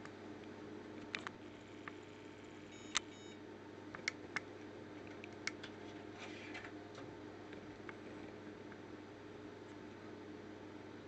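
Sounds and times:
machine low hum: 0.0s - 11.0s
card reader beep: 2.7s - 3.4s.

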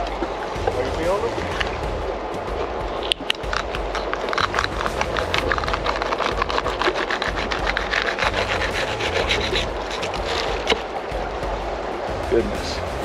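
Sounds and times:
knife crunching through fish bones: 3.2s - 10.8s.

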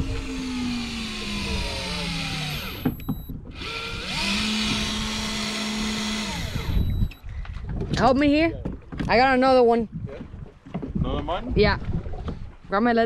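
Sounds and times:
fishing reel motor whine: 0.0s - 7.2s
reel clicks: 0.0s - 7.3s.

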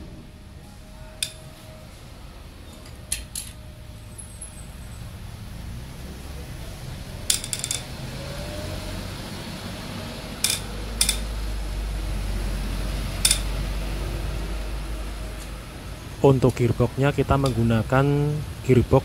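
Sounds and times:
hammer striking metal: 1.0s - 1.7s, 7.3s - 7.9s, 10.4s - 11.3s, 13.2s - 13.5s.

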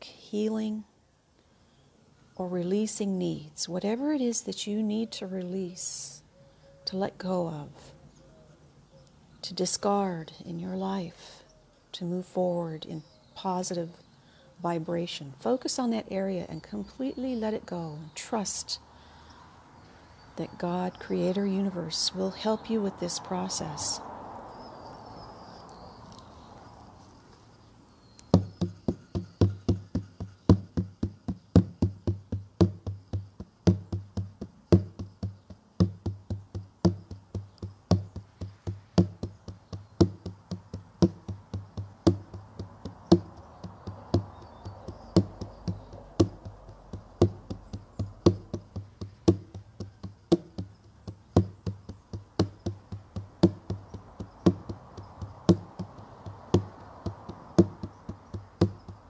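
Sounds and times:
low-pitched hand drum beating: 28.4s - 59.0s.

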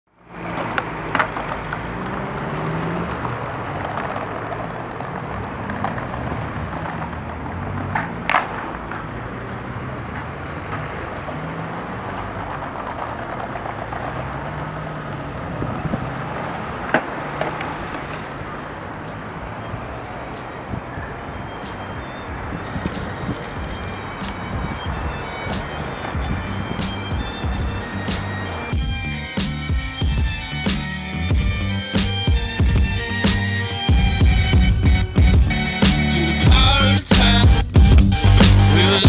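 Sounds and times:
skateboard wheels rolling on paving: 0.1s - 39.0s
street noise rumble: 0.1s - 39.0s
skateboard clacking on pavement: 0.3s - 28.9s.

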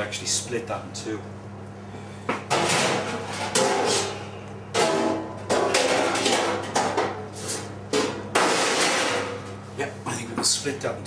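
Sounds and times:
steady low hum: 0.0s - 11.0s
metal pans clattering: 2.5s - 7.2s, 7.9s - 9.4s.

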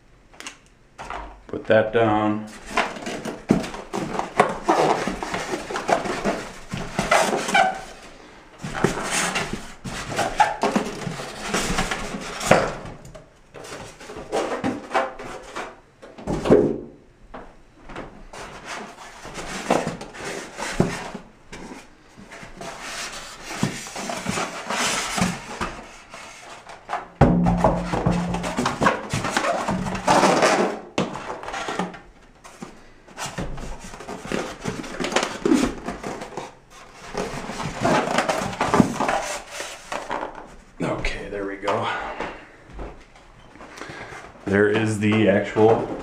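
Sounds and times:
cardboard box rustling and scraping: 2.5s - 12.8s, 18.3s - 27.0s, 27.7s - 40.6s.

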